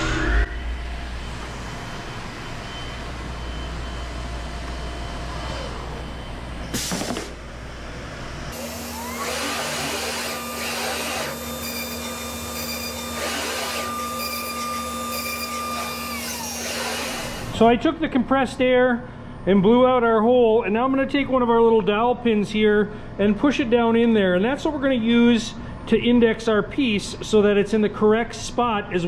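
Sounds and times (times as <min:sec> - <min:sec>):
router spindle whine: 0:00.4 - 0:17.6
vacuum pump running: 0:00.7 - 0:17.8
compressed air hiss: 0:06.7 - 0:07.4.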